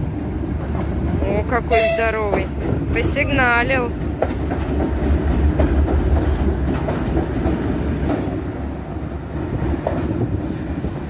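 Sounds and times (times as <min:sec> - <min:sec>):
diesel locomotive engine rumble: 0:00.0 - 0:11.0
train wheels clicking on rails: 0:00.0 - 0:11.0.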